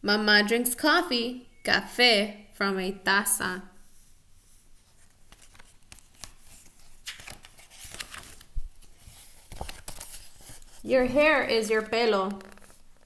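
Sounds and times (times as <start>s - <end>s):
paper pages rustling: 4.4s - 13.0s.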